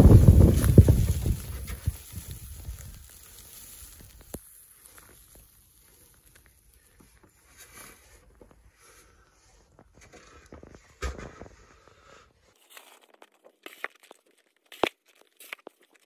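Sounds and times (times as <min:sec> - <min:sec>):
snow sliding rumble: 0:00.0 - 0:05.9
falling snow patter and ticks: 0:00.0 - 0:10.8.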